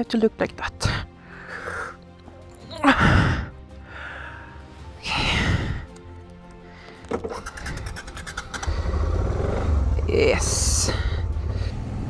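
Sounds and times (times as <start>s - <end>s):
background music with held tones: 0.0s - 12.0s
low rumble: 8.5s - 12.0s.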